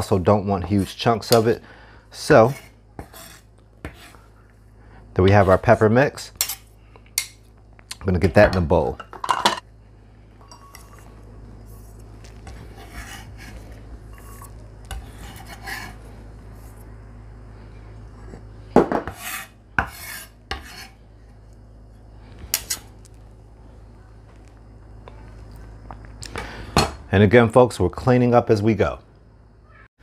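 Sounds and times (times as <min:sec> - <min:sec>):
knife scraping on cutting board: 0:02.3 - 0:04.3, 0:10.5 - 0:16.0, 0:19.0 - 0:21.0.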